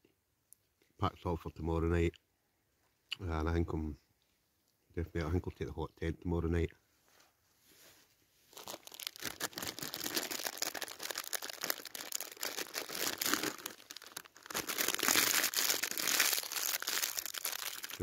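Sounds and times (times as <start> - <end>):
plastic packet crinkling: 8.5 - 18.0.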